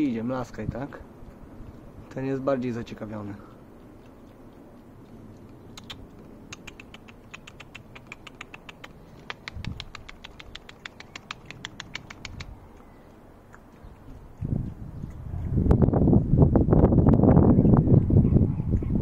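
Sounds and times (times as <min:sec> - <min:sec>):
person clicking tongue: 0:03.5 - 0:15.5.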